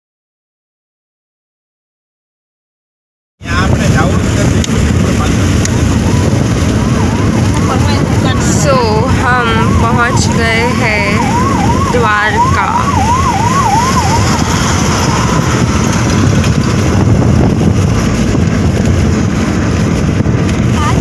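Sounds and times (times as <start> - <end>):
car road and wind noise: 3.4 - 21.0
ambulance siren warbling: 4.8 - 17.9.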